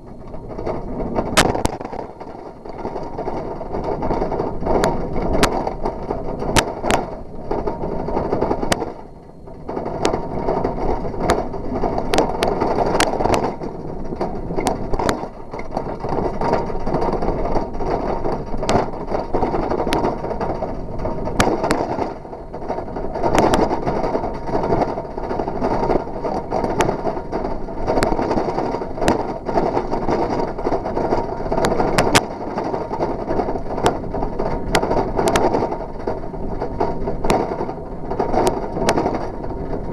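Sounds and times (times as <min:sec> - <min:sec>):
bicycle clicks and rattles: 0:00.0 - 0:39.9
bicycle tyres rumbling on asphalt: 0:00.0 - 0:39.9.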